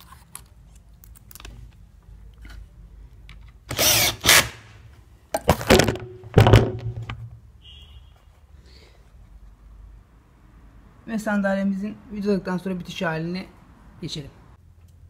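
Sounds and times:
drill driving screws: 0:03.7 - 0:04.7.

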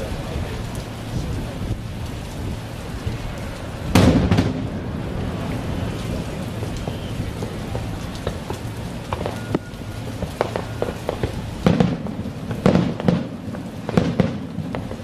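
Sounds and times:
firework shell bursting: 0:03.9 - 0:04.8.

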